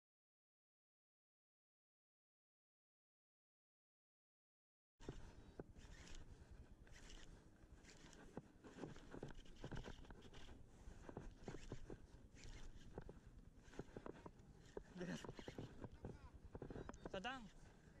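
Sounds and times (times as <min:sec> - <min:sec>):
hand handling fishing line: 0:05.0 - 0:17.8.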